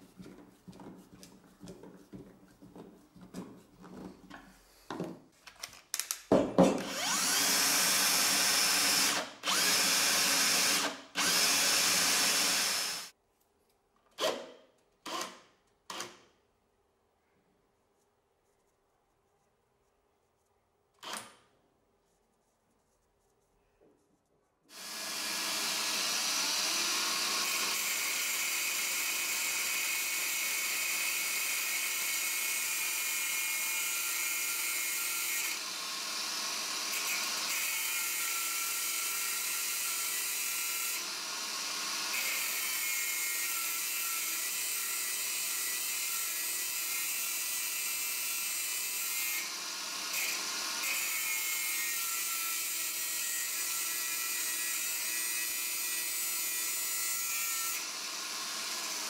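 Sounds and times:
angle grinder cutting steel: 6.8s - 13.1s, 24.7s - 59.0s.

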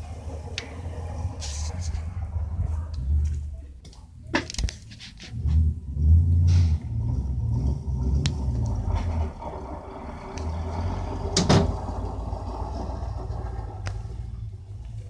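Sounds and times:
pickup truck engine rumbling: 0.0s - 15.0s.

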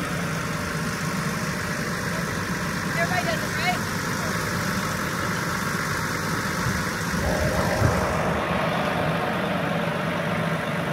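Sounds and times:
engine idling hum: 6.8s - 10.9s.

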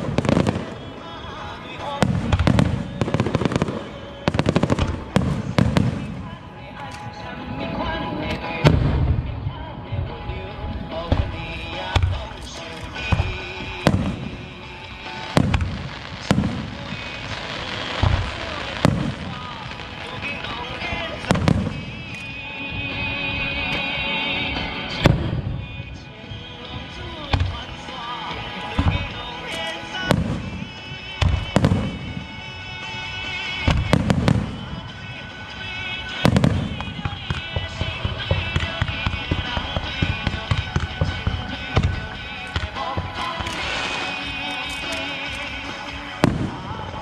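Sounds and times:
firework shells booming: 0.0s - 6.4s, 10.9s - 23.0s, 28.8s - 47.0s
music playing: 0.0s - 47.0s
firework shells bursting: 36.3s - 47.0s.

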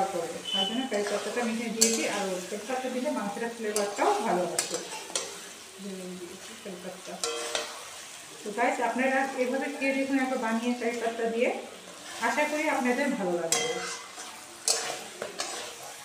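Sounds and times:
meat sizzling in a pan: 0.0s - 16.0s
metal spatula scraping a pan: 0.4s - 3.0s, 3.6s - 5.6s, 7.1s - 8.2s, 11.8s - 16.0s
spatula clinking against pan: 1.8s - 2.1s, 7.2s - 7.8s, 13.5s - 15.7s.

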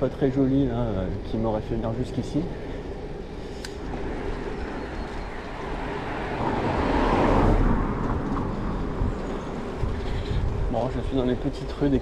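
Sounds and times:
wind rumbling on microphone: 0.0s - 12.0s
motor vehicle passing: 3.8s - 10.7s.

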